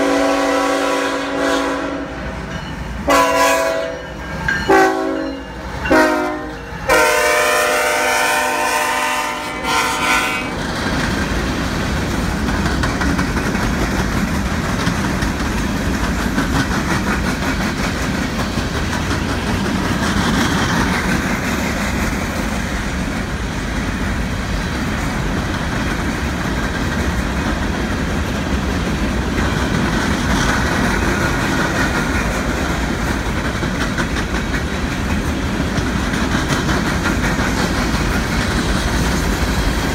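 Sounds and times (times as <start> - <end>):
locomotive air horn: 0.0 - 2.3, 3.1 - 4.1, 4.7 - 10.6
wheels on rails: 8.8 - 39.9.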